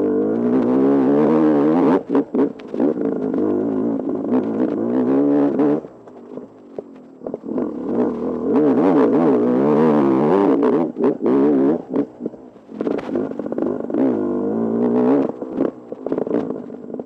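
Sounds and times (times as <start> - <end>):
motorcycle engine revving: 0.0 - 17.0.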